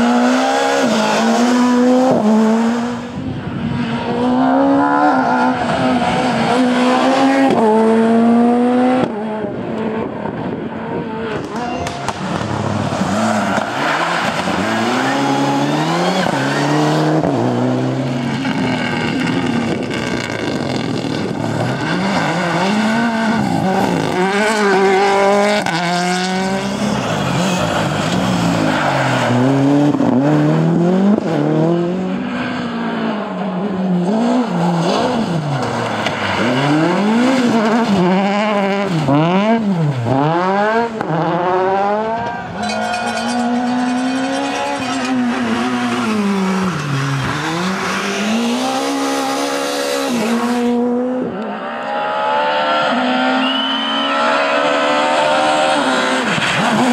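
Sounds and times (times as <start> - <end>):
rally cars passing at speed: 0.0 - 56.9.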